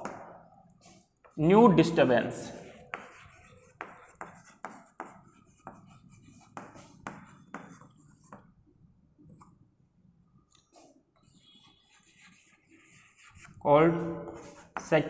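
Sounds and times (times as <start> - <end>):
chalk tapping and scratching: 2.5 - 8.6, 10.7 - 15.0.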